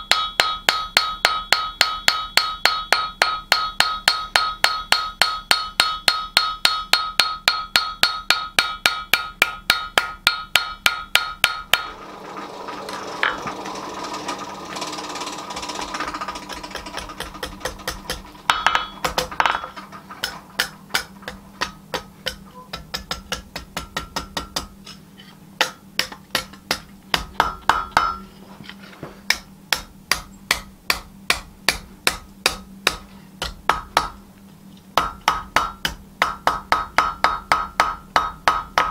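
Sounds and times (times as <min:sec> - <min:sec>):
hammer ringing on an anvil: 0:00.0 - 0:11.9, 0:17.2 - 0:23.2, 0:27.4 - 0:28.3.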